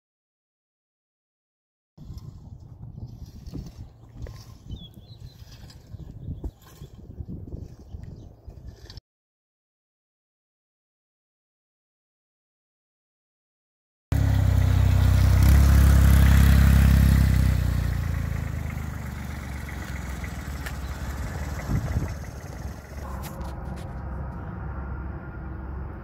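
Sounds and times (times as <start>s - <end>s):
forklift engine running: 14.2s - 26.0s.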